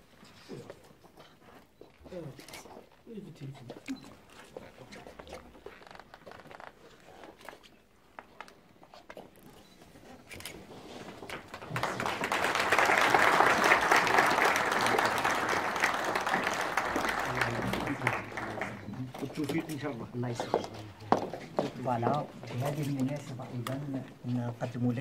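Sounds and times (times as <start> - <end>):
audience applauding: 11.2 - 19.4.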